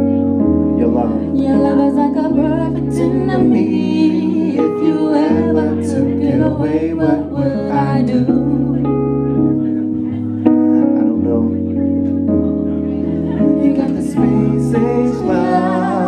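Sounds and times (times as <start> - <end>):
keyboard accompaniment: 0.0 - 16.0
person singing into microphone: 0.8 - 9.1, 13.3 - 16.0.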